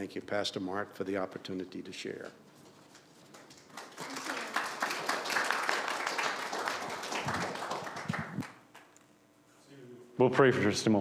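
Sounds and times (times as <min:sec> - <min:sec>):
people applauding: 0:03.3 - 0:08.9.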